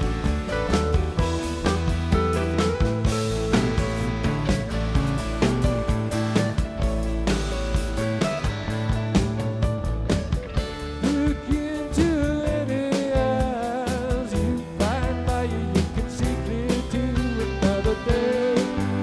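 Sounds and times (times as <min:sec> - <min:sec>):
lead guitar bent notes: 0:00.0 - 0:12.3
drum and cymbal beat: 0:00.0 - 0:19.0
electric bass: 0:00.0 - 0:19.0.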